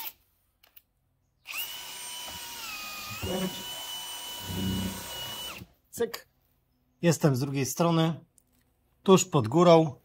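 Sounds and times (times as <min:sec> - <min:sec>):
electric drill boring into wood: 0:01.5 - 0:05.7.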